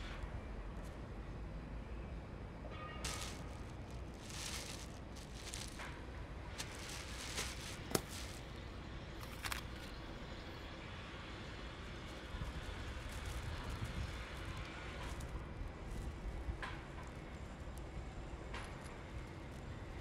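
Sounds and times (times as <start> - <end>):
low rumble of street traffic: 0.0 - 20.0
plastic bag rustling and crinkling: 3.0 - 8.6, 9.2 - 10.6, 12.0 - 15.3.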